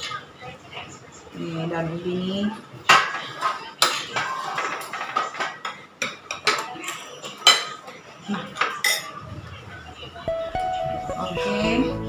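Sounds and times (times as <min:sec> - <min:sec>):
cutlery clinking against a dish: 0:02.9 - 0:09.2.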